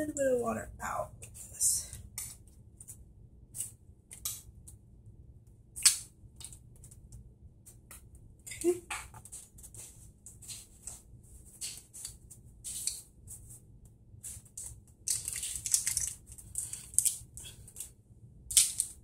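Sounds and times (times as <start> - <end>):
sharp plastic crackle: 14.5 - 17.9, 18.5 - 19.0
plastic packaging crinkling: 15.0 - 17.8.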